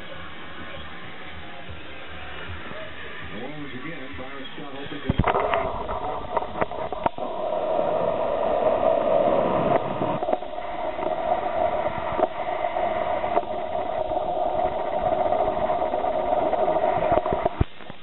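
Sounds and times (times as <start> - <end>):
crowd noise on television: 0.0 - 6.6.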